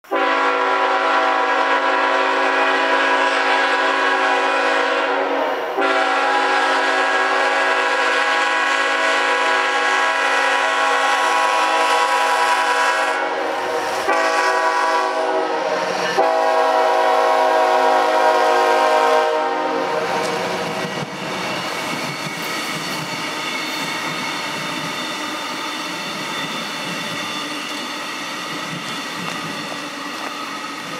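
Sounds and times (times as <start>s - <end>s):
locomotive air horn blasts: 0.0s - 20.6s
train cars rumbling on rails: 0.0s - 30.9s.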